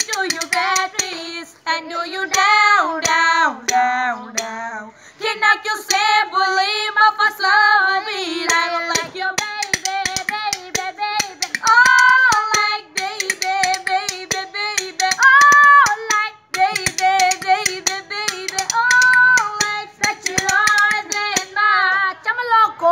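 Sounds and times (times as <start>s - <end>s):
women singing: 0.0s - 22.9s
hand claps: 8.5s - 21.6s.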